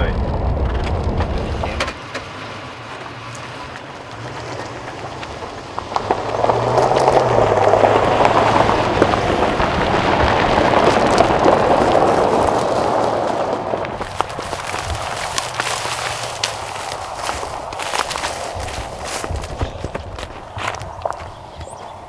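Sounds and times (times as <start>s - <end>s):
truck engine rumbling: 0.0s - 22.0s
running footsteps on gravel: 8.8s - 22.0s.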